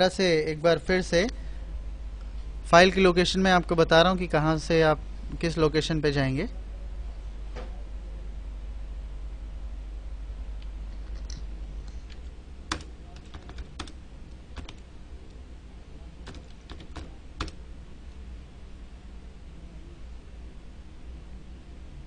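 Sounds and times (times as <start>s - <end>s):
steady low hum: 0.0s - 22.0s
keyboard keystrokes: 12.0s - 14.0s, 14.6s - 14.8s, 16.2s - 17.6s.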